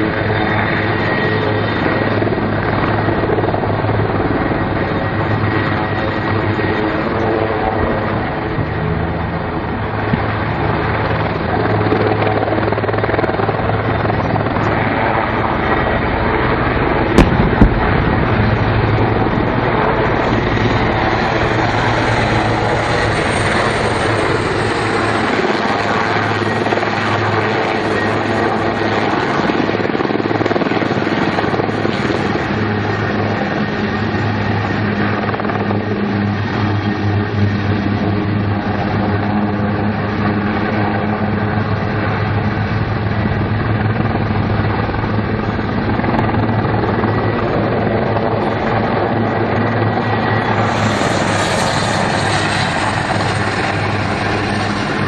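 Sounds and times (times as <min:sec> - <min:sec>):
constant low hum: 0:00.0 - 0:29.5
helicopter rotor and turbine noise: 0:00.0 - 0:55.0.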